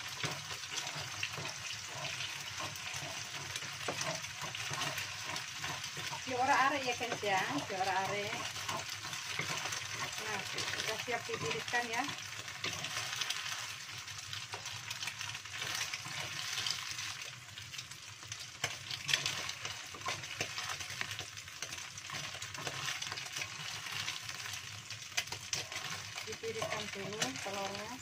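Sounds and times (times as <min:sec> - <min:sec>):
wooden spatula scraping pan: 0:00.0 - 0:17.3, 0:18.6 - 0:24.6, 0:25.5 - 0:28.0
eggs sizzling in hot oil: 0:00.0 - 0:28.0.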